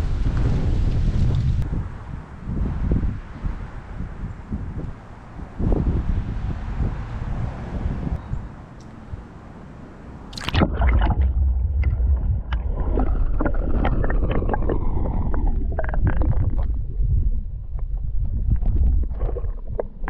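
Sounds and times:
camera splashing into water: 0:10.3 - 0:16.7
underwater clicks and crackles: 0:10.3 - 0:20.0
muffled underwater water rumble: 0:10.4 - 0:20.0.

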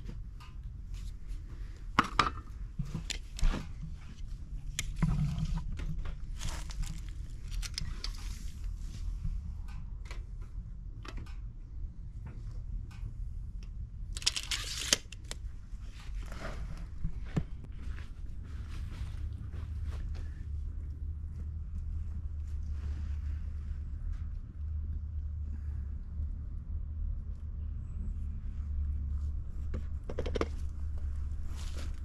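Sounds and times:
low steady rumble: 0:00.0 - 0:32.0
tape measure clicks and scrapes: 0:14.2 - 0:15.4.

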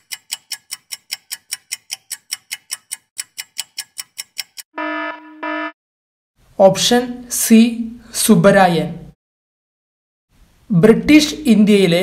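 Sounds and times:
clock-like ticking: 0:00.0 - 0:04.7
short electronic beeps: 0:04.8 - 0:05.8.

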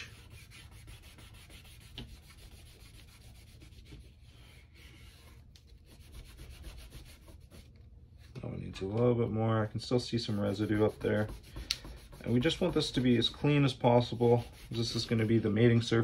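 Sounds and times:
cloth rubbing on metal: 0:09.9 - 0:16.0.

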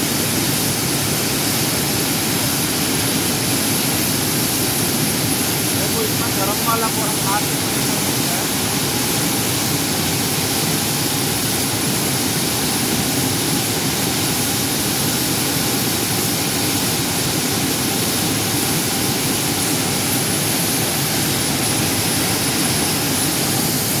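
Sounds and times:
thin high whine: 0:05.6 - 0:09.5.

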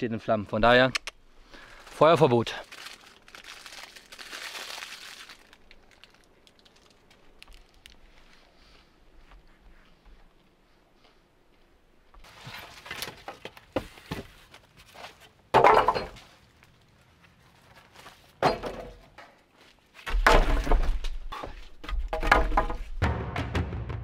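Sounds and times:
bamboo poles knocking: 0:20.1 - 0:23.0.

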